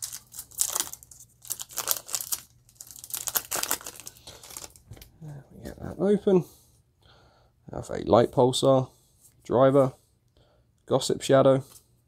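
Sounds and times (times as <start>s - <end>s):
foil wrapper crinkling and tearing: 0.0s - 5.1s.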